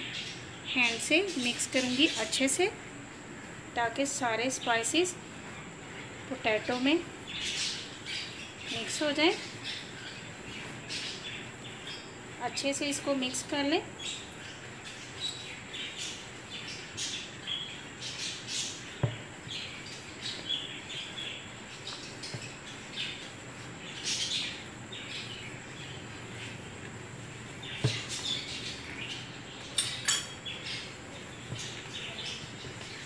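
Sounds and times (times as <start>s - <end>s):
hands squishing wet potato mixture: 6.2s - 29.7s, 30.4s - 33.0s.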